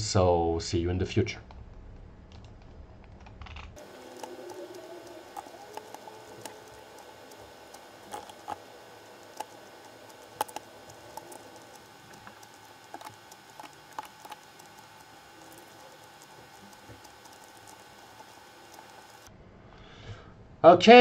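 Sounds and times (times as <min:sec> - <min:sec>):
mouse and keyboard clicking: 0:03.1 - 0:19.3
soft room hiss: 0:03.8 - 0:21.0.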